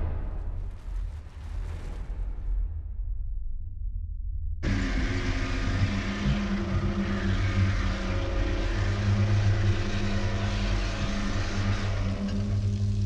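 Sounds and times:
grinder cutting concrete: 4.6s - 13.0s.

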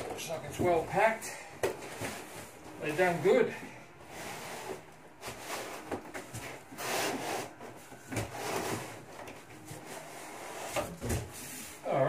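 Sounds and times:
cardboard scraping cardboard: 4.1s - 9.1s, 9.7s - 11.8s.

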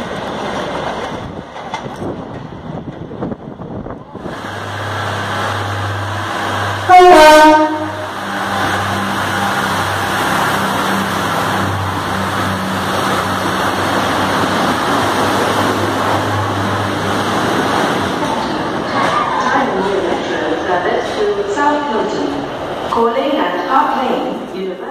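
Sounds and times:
train carriages rumbling: 0.0s - 24.9s
diesel engine humming: 3.4s - 24.2s
train horn blast: 6.4s - 12.7s.

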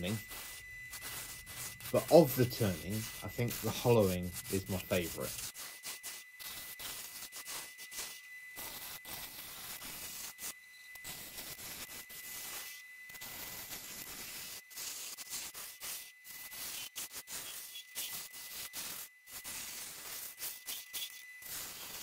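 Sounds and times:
lathe gouge cutting wood: 0.0s - 10.3s
faint high whine: 0.0s - 22.0s.

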